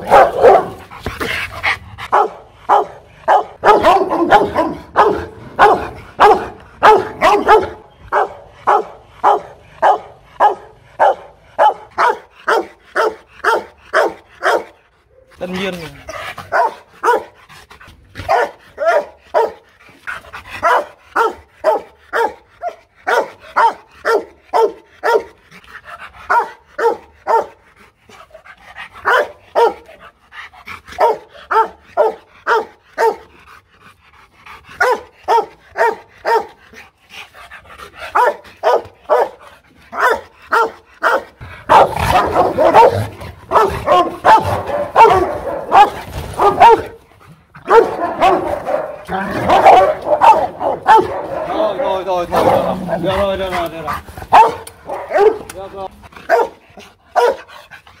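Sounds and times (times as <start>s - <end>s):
dog barking angrily: 0.0s - 27.6s, 28.8s - 30.1s, 30.8s - 33.4s, 34.7s - 36.8s, 37.8s - 57.6s.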